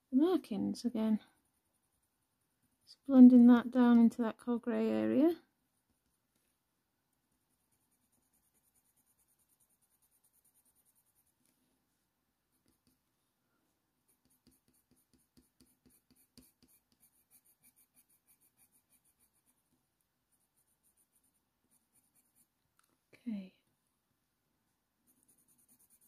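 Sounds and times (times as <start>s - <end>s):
pencil scratching on paper: 7.4s - 11.5s, 12.6s - 13.0s, 14.1s - 19.7s, 20.3s - 22.6s, 25.1s - 26.0s.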